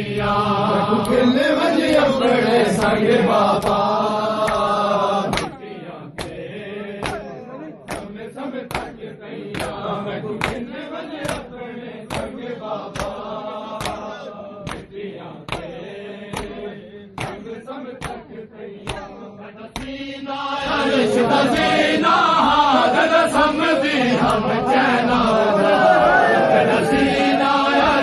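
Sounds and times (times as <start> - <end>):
men chanting in unison: 0.0 - 28.0
hands slapping chests: 4.4 - 5.6, 6.2 - 6.4, 7.0 - 7.3, 7.9 - 9.8, 10.4 - 10.6, 11.2 - 11.5, 12.1 - 12.4, 13.0 - 13.2, 13.8 - 14.9, 15.5 - 15.7, 16.3 - 16.6, 17.2 - 17.4, 18.0 - 19.1.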